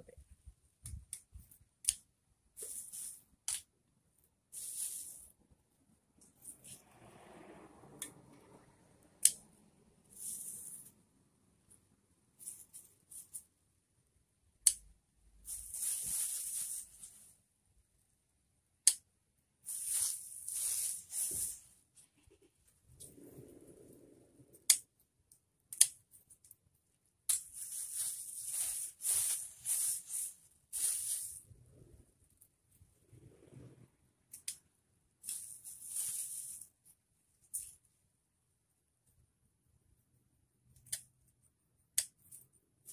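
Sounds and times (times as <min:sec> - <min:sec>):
plastic bag handled: 0:27.4 - 0:31.5
leaves rustling: 0:27.5 - 0:31.4.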